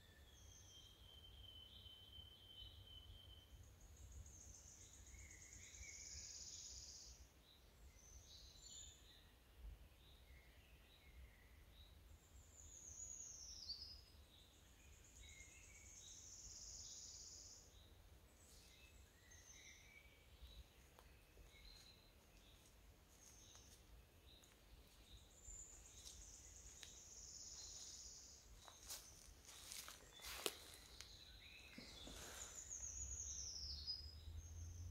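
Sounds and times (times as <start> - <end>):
songbirds trilling: 12.3 - 34.9
short bird chirps: 30.1 - 34.1.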